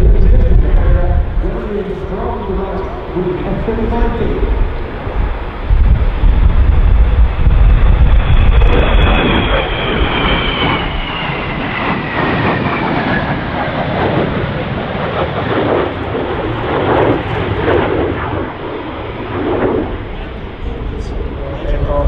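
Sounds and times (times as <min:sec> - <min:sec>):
jet turbine whine: 0:00.0 - 0:22.0
rushing jet engine noise: 0:00.0 - 0:22.0.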